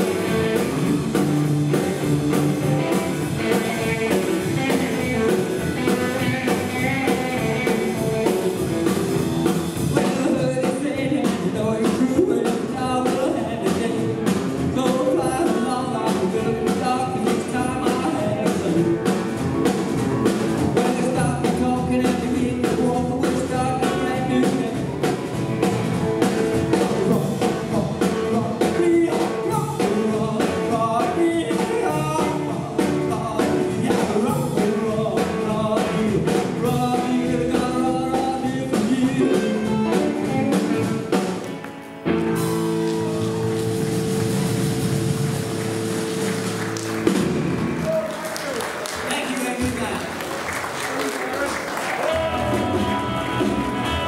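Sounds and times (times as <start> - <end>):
upright double bass: 0.0 - 41.3, 42.0 - 48.0, 51.8 - 54.0
drum kit: 0.0 - 54.0
electric guitars: 0.0 - 54.0
male lead vocal: 9.9 - 19.2, 20.6 - 25.0, 26.8 - 41.0, 51.3 - 54.0.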